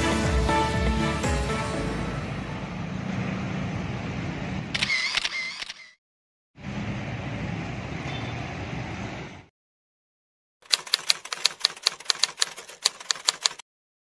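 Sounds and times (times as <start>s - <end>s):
street traffic noise: 0.0s - 5.9s, 6.6s - 9.5s
typewriter keystroke clacks: 10.6s - 13.6s.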